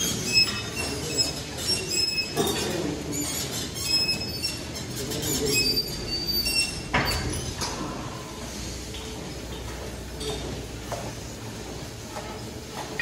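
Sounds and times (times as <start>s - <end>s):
gym equipment squeaking: 0.0s - 7.6s.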